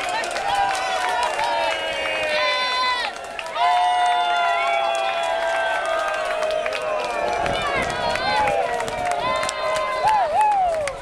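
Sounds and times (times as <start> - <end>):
crowd cheering: 0.0 - 11.0
long shouts: 0.6 - 10.8
hand claps: 2.7 - 11.0.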